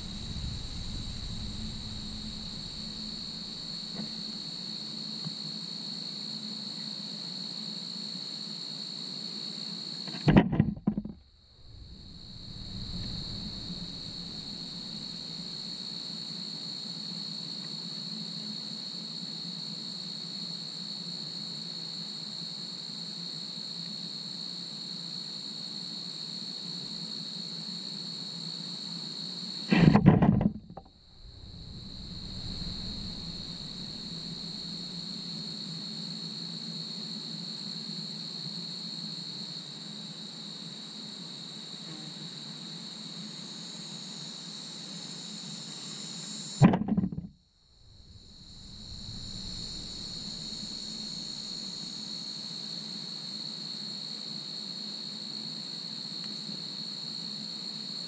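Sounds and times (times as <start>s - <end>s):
loud bumps near microphone: 0.0s - 4.4s, 10.2s - 15.6s, 29.7s - 35.0s, 46.6s - 51.5s
low steady hum: 0.0s - 4.6s, 10.3s - 15.9s, 29.7s - 35.2s, 46.6s - 51.8s
crickets trilling: 0.0s - 58.0s.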